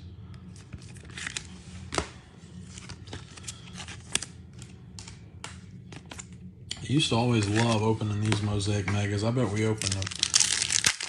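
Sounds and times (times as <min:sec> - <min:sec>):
cards sliding into plastic sleeves: 0:00.5 - 0:06.3.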